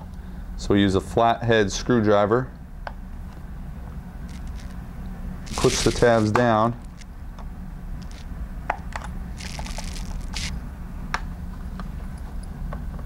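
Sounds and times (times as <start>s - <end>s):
screwdriver scraping plastic: 4.3s - 4.7s, 5.5s - 7.0s, 9.4s - 10.5s
sharp plastic clicks: 5.5s - 7.1s, 9.4s - 10.5s.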